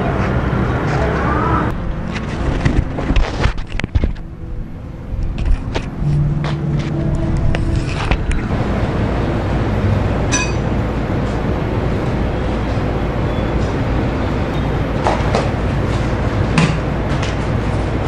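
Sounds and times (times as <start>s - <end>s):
sharp metallic clinks: 10.3s - 10.7s.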